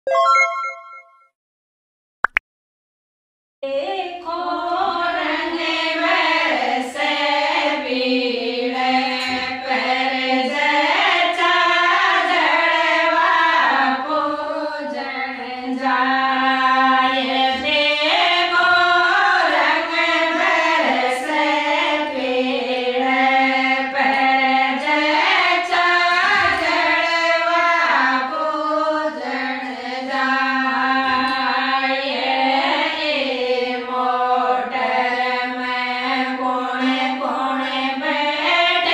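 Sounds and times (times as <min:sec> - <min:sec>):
women singing together: 0:03.6 - 0:38.9.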